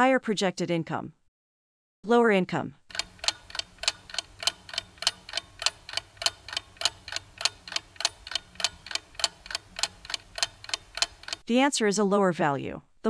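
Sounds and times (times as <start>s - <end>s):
clock ticking: 2.9s - 11.5s.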